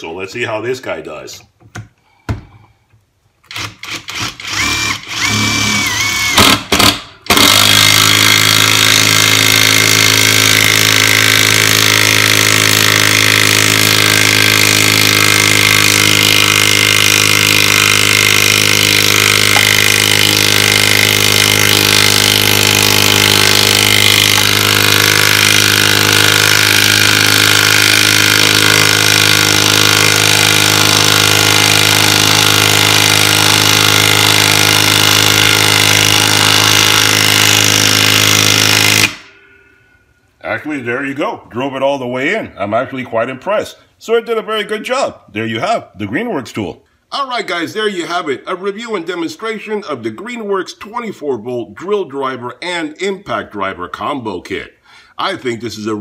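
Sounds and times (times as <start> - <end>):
impact driver hammering: 3.5 - 39.3.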